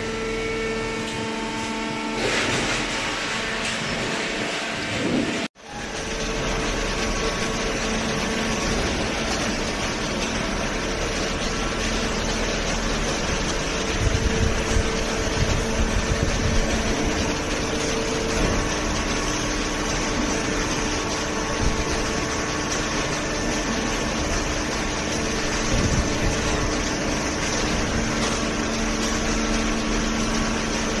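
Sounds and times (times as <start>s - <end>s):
baler machine hum: 0.0s - 31.0s.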